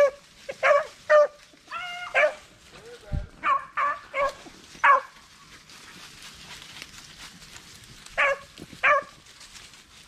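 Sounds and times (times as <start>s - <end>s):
dog barking: 0.0s - 2.4s, 3.4s - 5.2s, 8.2s - 9.2s.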